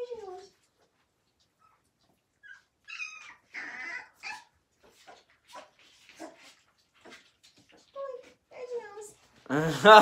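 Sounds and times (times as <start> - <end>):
puppies whimpering and yipping: 1.4 - 7.3.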